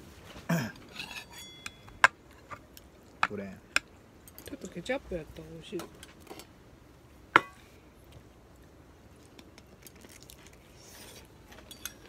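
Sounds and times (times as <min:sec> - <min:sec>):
sausage being bitten and chewed: 0:08.2 - 0:11.5.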